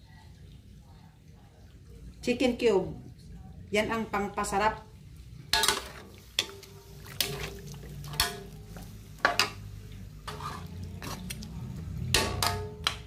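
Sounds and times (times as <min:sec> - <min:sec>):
spatula stirring broth in a pan: 0:05.1 - 0:13.0
spatula knocking and scraping pan: 0:05.5 - 0:13.0
liquid sloshing: 0:05.6 - 0:12.9.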